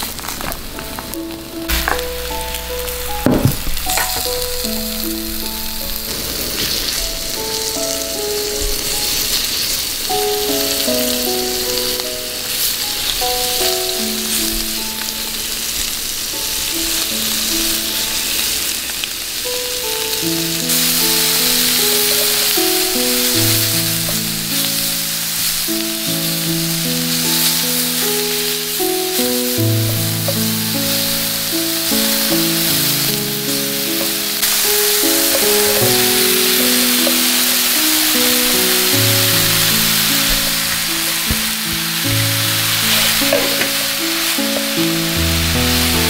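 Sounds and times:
food sizzling in oil: 0:00.0 - 0:46.0
knocks: 0:01.7 - 0:04.5, 0:43.2 - 0:43.8.

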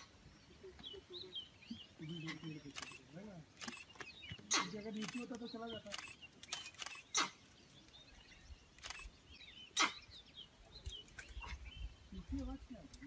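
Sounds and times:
birds chirping: 0:00.0 - 0:13.0
camera shutter clicks: 0:02.7 - 0:04.1, 0:05.0 - 0:07.2, 0:08.8 - 0:09.1.

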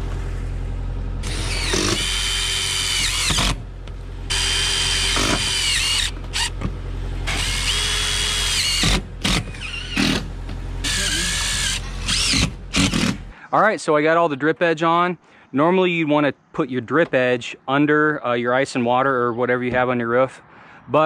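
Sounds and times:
cordless drill driving screws: 0:01.2 - 0:03.6, 0:04.3 - 0:06.6, 0:07.3 - 0:10.2, 0:10.8 - 0:13.2.

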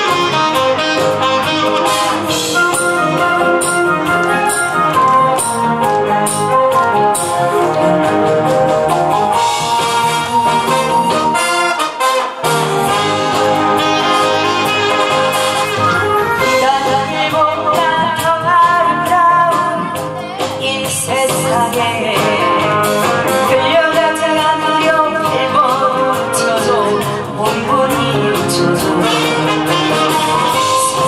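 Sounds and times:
instrumental accompaniment: 0:00.0 - 0:31.0
woman singing into a microphone: 0:15.9 - 0:31.0.

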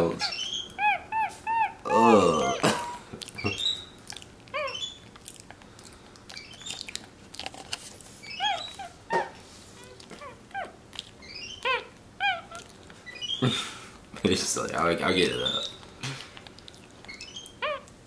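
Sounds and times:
monkey chirping: 0:00.2 - 0:02.6, 0:03.3 - 0:05.1, 0:06.3 - 0:06.9, 0:08.2 - 0:13.4, 0:15.3 - 0:15.8, 0:17.0 - 0:17.9.

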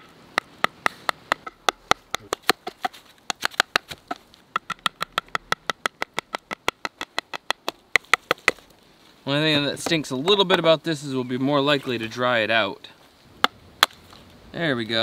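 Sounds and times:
stick knocking knife through bone: 0:00.4 - 0:08.6.

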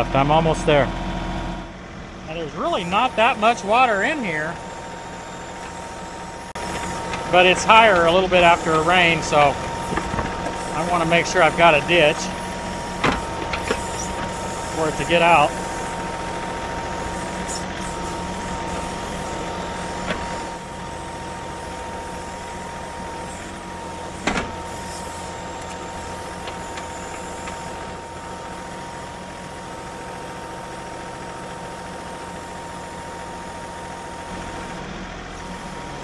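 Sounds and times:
steady whine: 0:00.0 - 0:28.6
tractor diesel engine running: 0:00.0 - 0:36.0.

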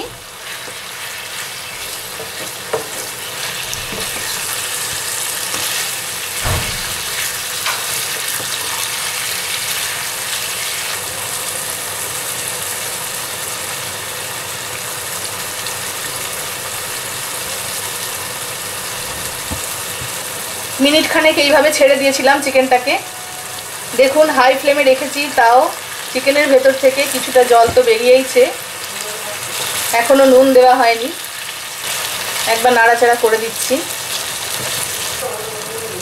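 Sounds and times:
chicken sizzling in oil: 0:00.0 - 0:35.4
wooden spatula knocking pan: 0:27.6 - 0:28.0.

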